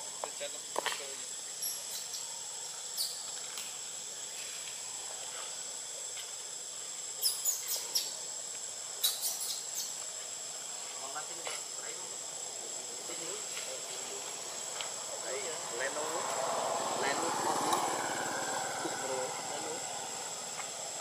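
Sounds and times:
insects droning: 0:00.0 - 0:21.0
sharp high chirps: 0:01.5 - 0:02.3, 0:07.2 - 0:08.2, 0:09.0 - 0:10.0.

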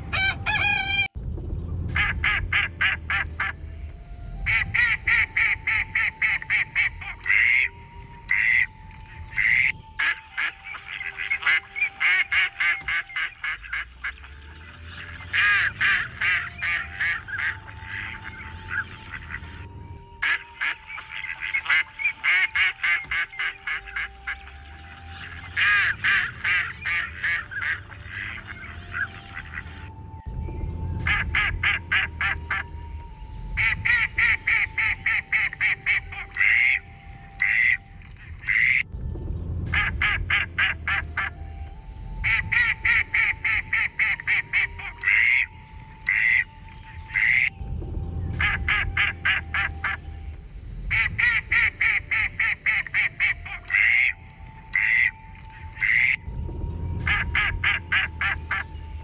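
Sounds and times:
ducks quacking: 0:00.0 - 0:01.2, 0:01.9 - 0:03.6, 0:04.4 - 0:30.0, 0:30.9 - 0:38.9, 0:39.7 - 0:41.4, 0:42.2 - 0:47.6, 0:48.3 - 0:56.3, 0:56.9 - 0:59.0
geese honking: 0:00.0 - 0:01.2, 0:01.9 - 0:38.9, 0:39.7 - 0:59.0.

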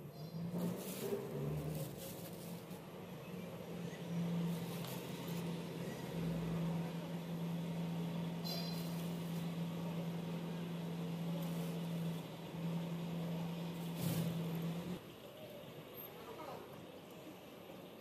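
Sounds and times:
low motor hum: 0:00.0 - 0:15.0
faint soft rustles: 0:00.5 - 0:03.0.

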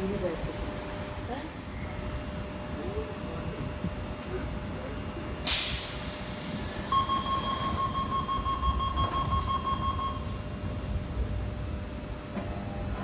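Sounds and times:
train rumble: 0:00.0 - 0:13.0
train door hiss: 0:05.4 - 0:06.9
door closing warning tone: 0:06.9 - 0:11.0.

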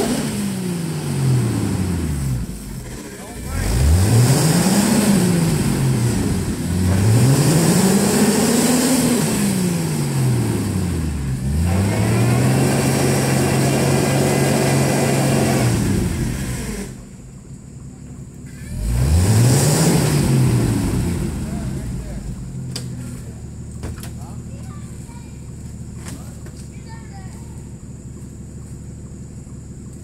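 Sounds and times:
engine revving hard: 0:00.0 - 0:17.1, 0:18.7 - 0:22.5
tires spinning in dirt: 0:00.0 - 0:30.0.

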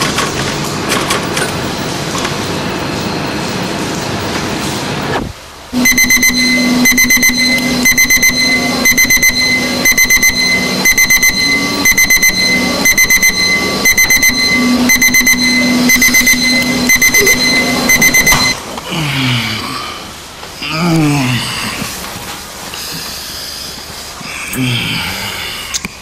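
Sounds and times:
low steady hum: 0:05.7 - 0:18.6
alarm clock beeping: 0:05.8 - 0:18.6.

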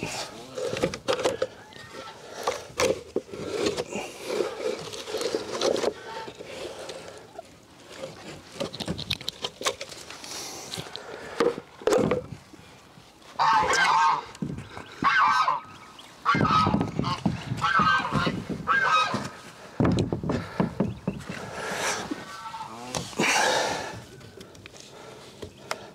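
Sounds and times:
geese honking: 0:13.4 - 0:19.4, 0:22.2 - 0:22.9.

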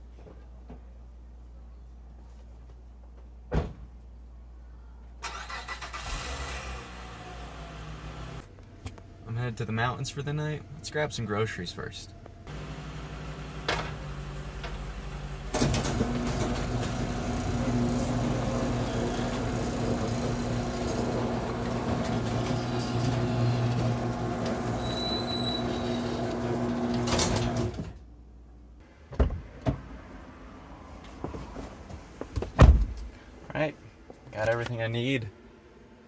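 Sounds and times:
car engine running: 0:12.5 - 0:24.8.

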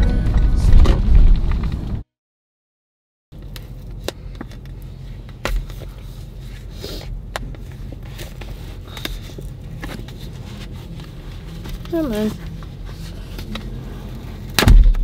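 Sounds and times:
low steady hum: 0:03.4 - 0:15.0
fabric rustling and scraping: 0:03.6 - 0:14.6.

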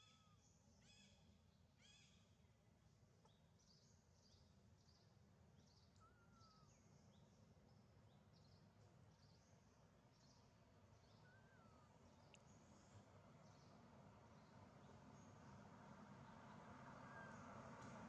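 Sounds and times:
bird chirps: 0:03.3 - 0:06.9.

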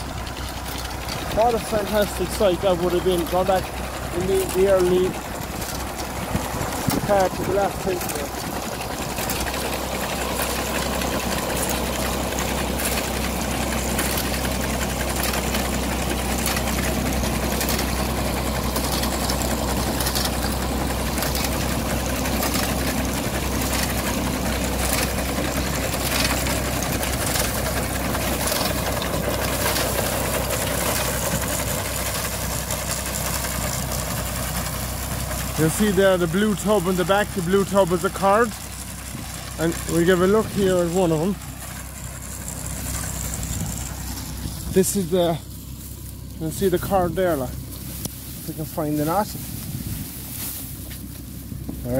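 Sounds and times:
binder mechanism clicking and clattering: 0:00.0 - 0:34.8
tractor diesel engine running: 0:00.0 - 0:51.9.

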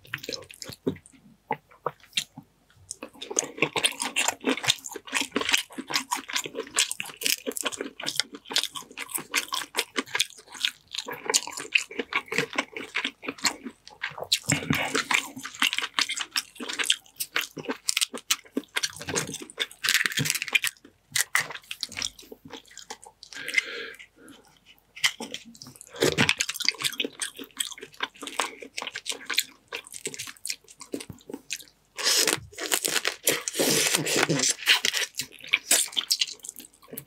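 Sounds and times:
crab shell crunching: 0:03.0 - 0:24.2, 0:24.9 - 0:37.0.

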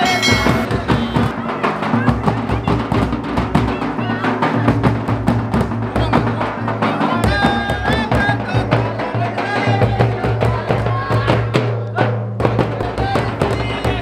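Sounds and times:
wavering melody: 0:00.0 - 0:01.5
drums beating quick rhythm: 0:00.0 - 0:14.0.

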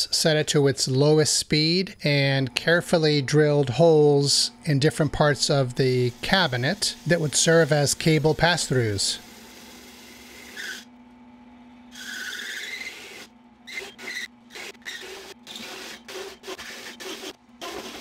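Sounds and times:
drill press humming: 0:02.1 - 0:18.0
hole saw scraping sheet metal: 0:11.9 - 0:18.0.

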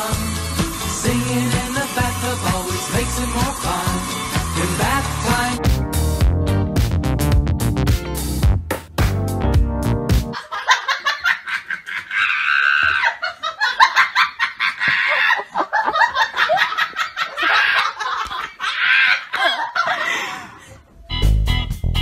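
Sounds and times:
person laughing hard: 0:10.4 - 0:20.8.

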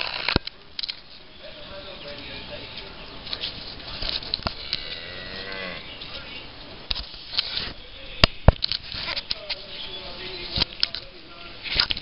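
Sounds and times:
cow mooing: 0:04.6 - 0:05.9.

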